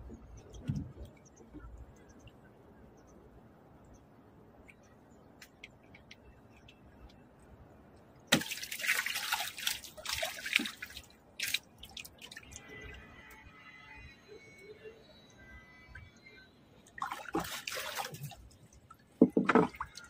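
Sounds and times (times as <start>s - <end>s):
water dripping: 7.9s - 13.4s
fish splashing in water: 8.3s - 12.8s, 17.0s - 18.6s.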